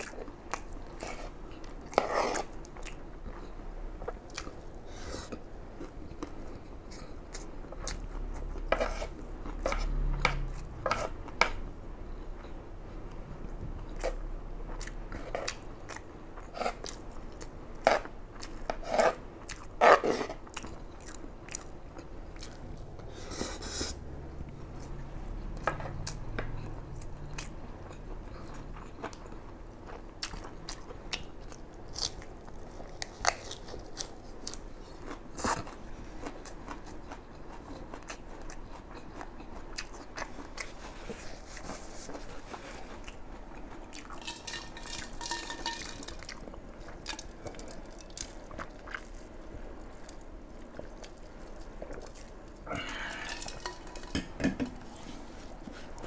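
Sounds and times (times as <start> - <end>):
close chewing with wet mouth sounds: 0.0 - 54.1
food crunching: 25.6 - 56.0.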